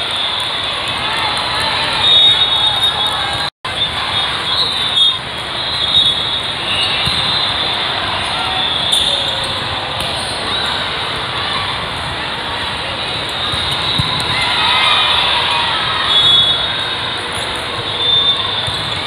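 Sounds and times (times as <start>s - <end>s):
crowd and hall noise: 0.0s - 19.0s
sneaker squeaks: 4.4s - 10.9s, 13.1s - 14.5s, 16.0s - 19.0s.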